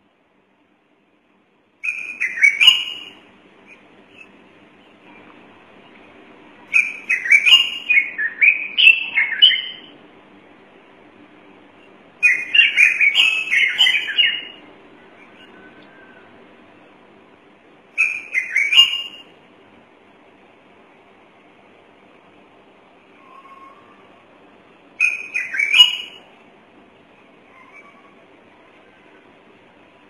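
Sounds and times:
stone-curlew piping calls: 1.8s - 4.3s, 6.7s - 9.9s, 12.2s - 16.3s, 17.9s - 19.3s, 25.0s - 26.3s, 27.5s - 28.2s.

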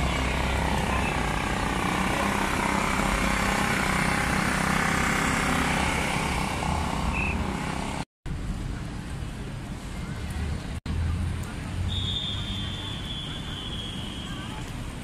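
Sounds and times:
loud mechanical drone: 0.0s - 7.0s.

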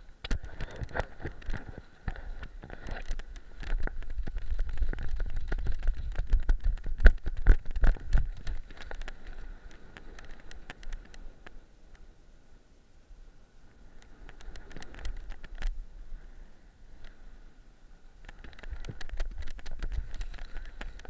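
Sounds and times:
wind buffeting microphone: 0.0s - 11.1s, 18.2s - 21.0s.

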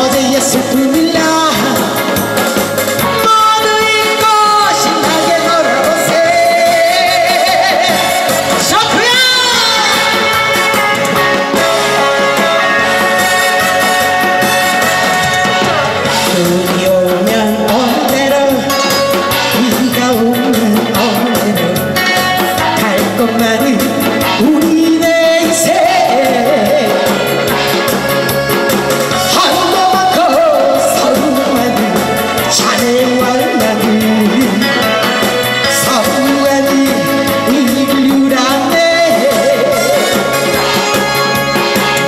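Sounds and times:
amplified backing music: 0.0s - 42.0s
woman singing into a microphone: 0.0s - 42.0s.

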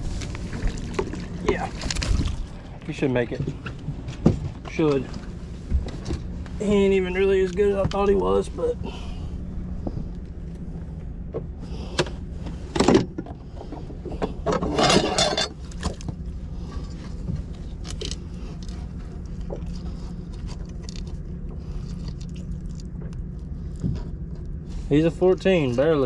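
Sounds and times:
steady low hum: 0.0s - 26.0s
rattling scrape: 12.6s - 15.6s.

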